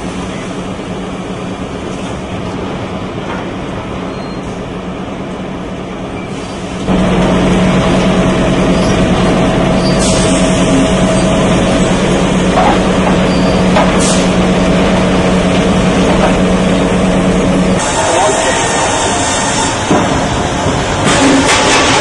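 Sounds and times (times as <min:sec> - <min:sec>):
debarking machine drone: 0:06.9 - 0:20.1.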